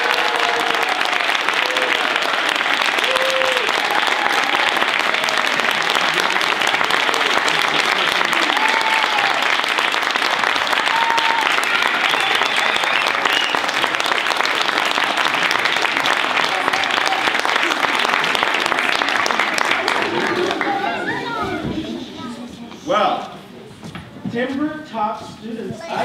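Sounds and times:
audience applauding: 0:00.0 - 0:21.6.

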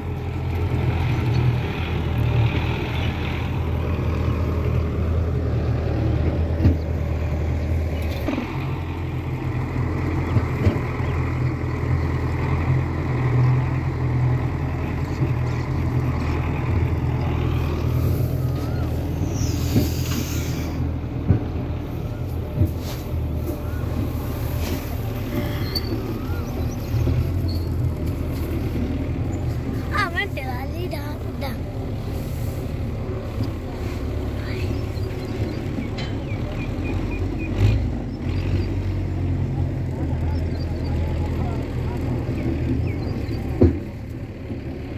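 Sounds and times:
tractor diesel engine running: 0:00.0 - 0:44.9
brief hiss: 0:19.3 - 0:20.8.

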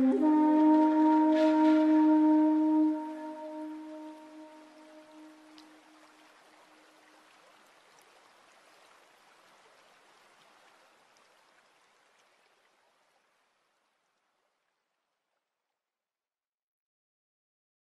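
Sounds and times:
water trickling from water feature: 0:00.0 - 0:15.4.

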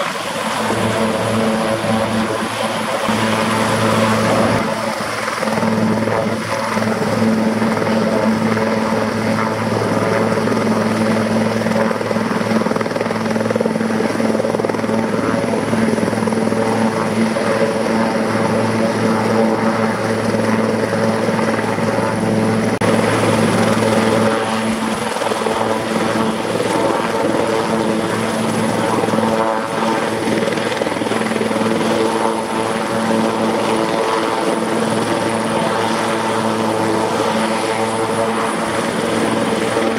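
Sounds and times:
helicopter rotors and engines droning: 0:00.0 - 0:39.9
high turbine whine: 0:00.0 - 0:39.9.

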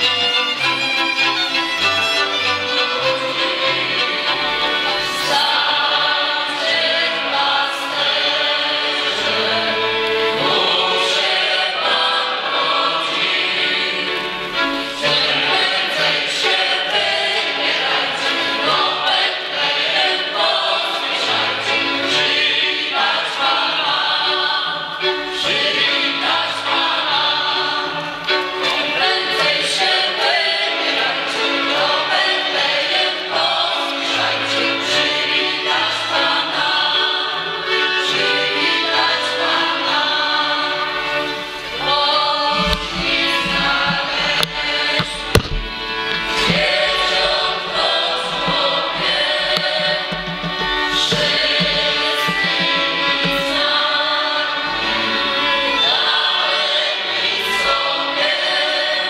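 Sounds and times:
choir singing a carol: 0:00.0 - 0:59.0.

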